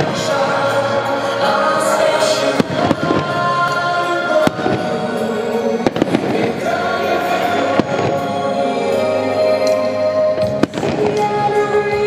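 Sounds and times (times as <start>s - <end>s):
fireworks bursting with bangs: 0.0s - 9.8s, 10.4s - 12.0s
music playing: 0.0s - 12.0s.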